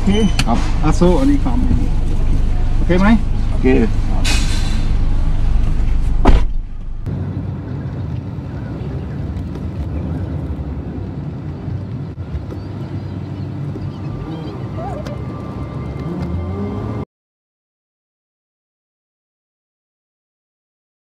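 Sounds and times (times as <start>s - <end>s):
car engine hum: 0.0s - 17.0s
road noise inside car: 0.0s - 17.0s
car door shutting: 5.9s - 6.8s.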